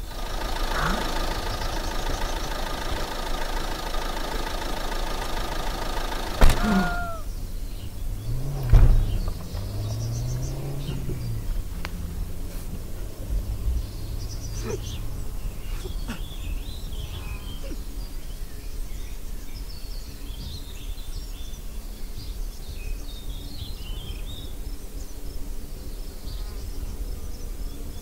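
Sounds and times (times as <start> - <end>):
low background rumble: 0.0 - 28.0
faint ticks: 11.7 - 13.0.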